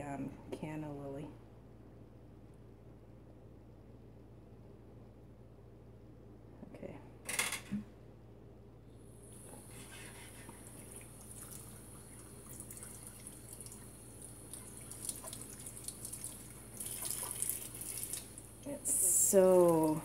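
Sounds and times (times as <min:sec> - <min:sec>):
tap water running into sink: 0:10.4 - 0:19.0
water dripping: 0:10.6 - 0:20.0.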